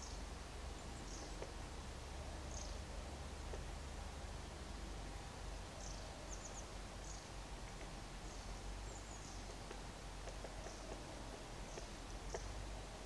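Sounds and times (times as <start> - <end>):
small birds chirping: 0.0 - 3.6, 5.7 - 13.0
woodpecker tapping: 1.0 - 1.6, 5.8 - 13.0.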